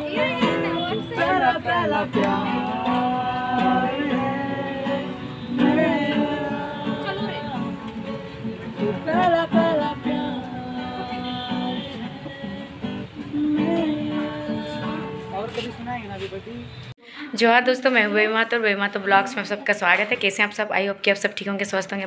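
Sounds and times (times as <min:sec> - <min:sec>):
man singing: 0:00.0 - 0:07.8, 0:08.8 - 0:15.6
acoustic guitar strumming: 0:00.0 - 0:16.3.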